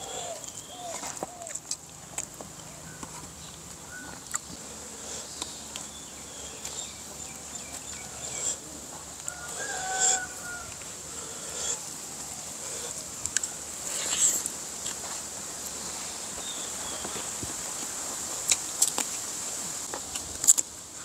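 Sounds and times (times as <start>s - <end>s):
high insect drone: 0.0s - 1.7s, 4.5s - 19.9s
small clicks of eating: 0.4s - 6.0s, 12.9s - 15.0s, 17.0s - 19.2s, 19.8s - 20.7s
rooster crowing: 9.2s - 11.8s.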